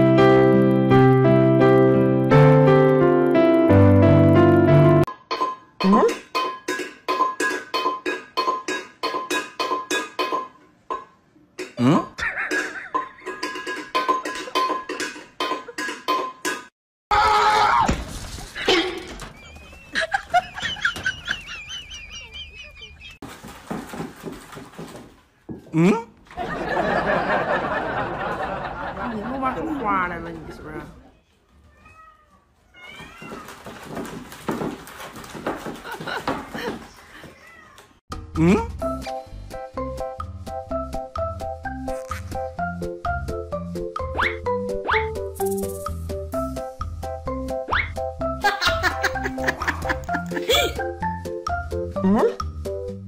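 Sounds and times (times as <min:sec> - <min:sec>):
cat meowing: 0:31.6 - 0:33.6, 0:37.3 - 0:38.0.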